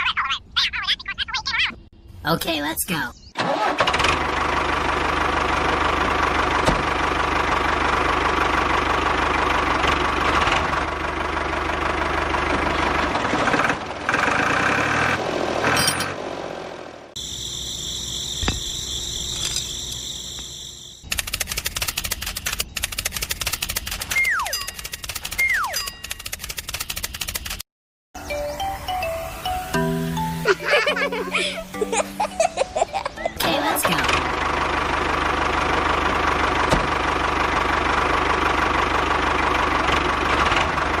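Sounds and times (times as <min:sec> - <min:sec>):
tractor engine running: 0:03.4 - 0:27.6, 0:28.5 - 0:41.0
rapid clicks: 0:21.0 - 0:27.6.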